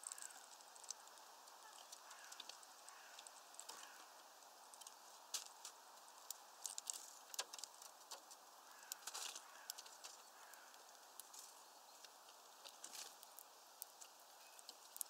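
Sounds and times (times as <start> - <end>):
faint bird chirps: 1.5 - 4.2, 8.6 - 12.2, 13.8 - 15.0
beaks tapping on feeder tray: 1.6 - 4.1, 7.3 - 11.3.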